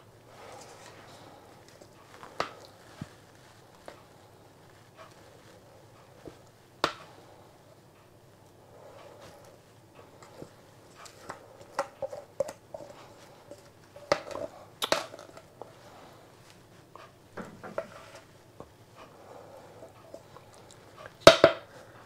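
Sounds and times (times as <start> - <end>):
scraping against metal bowl: 17.0 - 18.3, 19.0 - 21.2.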